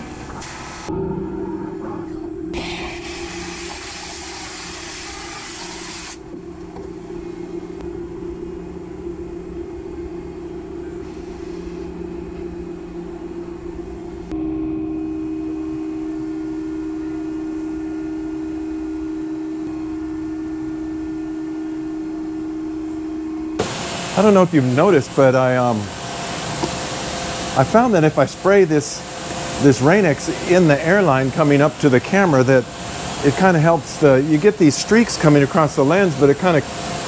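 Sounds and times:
compressed air hissing: 0.0 - 0.9, 2.6 - 6.2, 11.0 - 11.9, 23.6 - 32.0
machine hum: 0.0 - 37.0.

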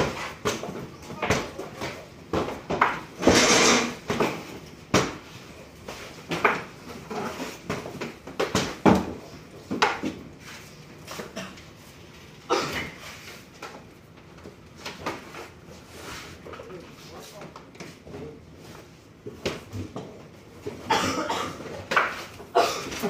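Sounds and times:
wooden screens knocking on tables: 2.4 - 4.4.

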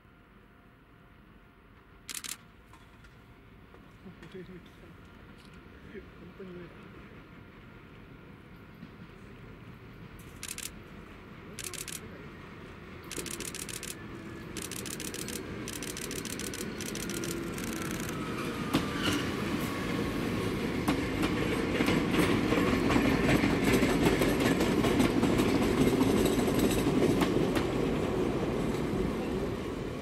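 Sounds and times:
electric train passing: 6.8 - 30.0.

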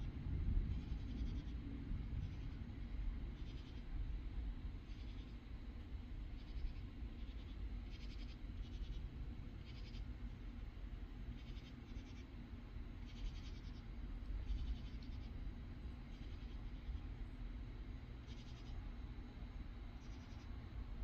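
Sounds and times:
low background rumble: 0.0 - 21.0
katydids rasping chirps: 13.0 - 13.9.

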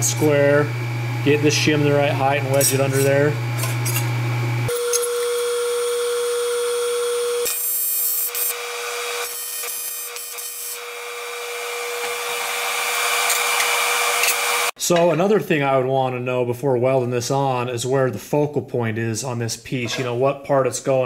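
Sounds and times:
welding arc buzzing: 0.0 - 14.8.

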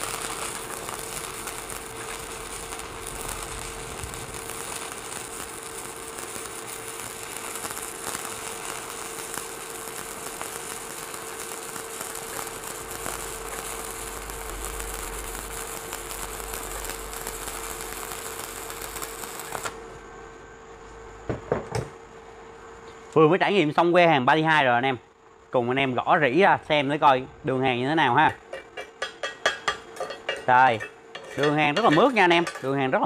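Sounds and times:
welding arc crackling: 0.0 - 19.9, 28.0 - 33.0.

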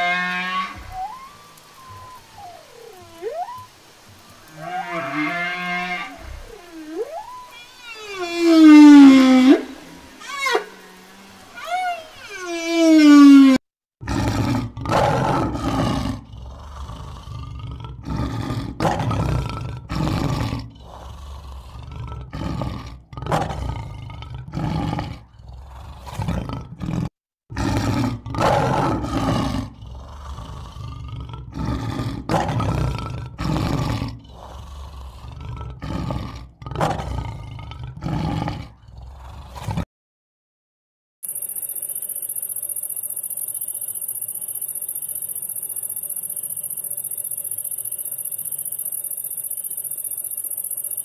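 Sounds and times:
lion roaring: 14.0 - 39.8.

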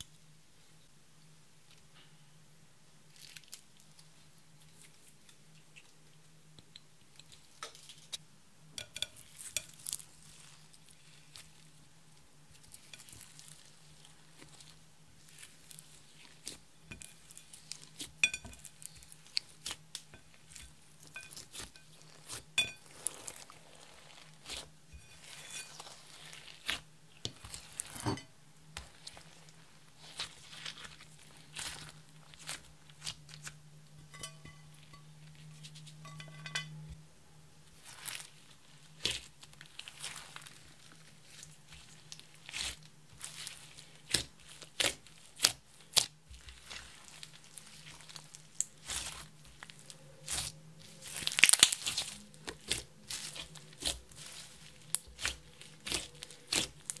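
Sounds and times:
slime crackling and popping: 39.0 - 57.0.

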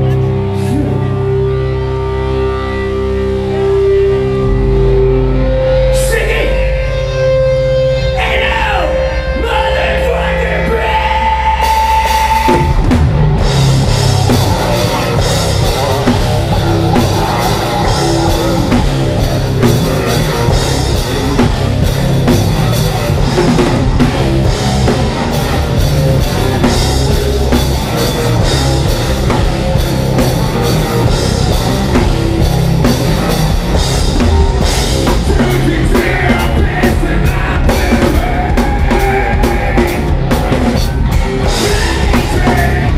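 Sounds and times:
bass guitar: 0.0 - 42.9
distorted electric guitars: 0.0 - 42.9
drum kit: 11.3 - 42.9
person singing into microphone: 35.3 - 40.1, 41.4 - 42.9.

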